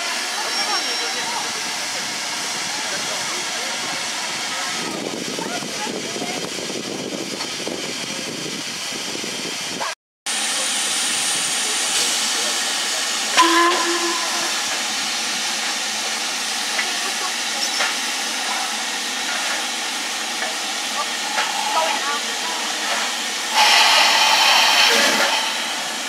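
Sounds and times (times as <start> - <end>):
steam locomotive hissing: 0.0 - 26.0
short pitched tone: 13.4 - 14.8.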